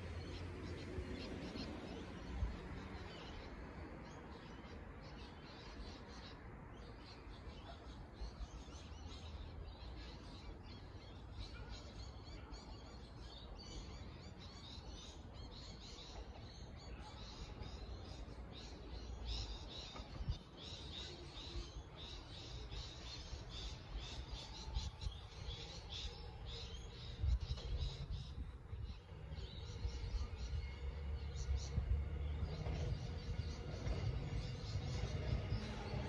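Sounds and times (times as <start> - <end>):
birds chirping: 0.0 - 36.0
low bumps: 31.1 - 36.0.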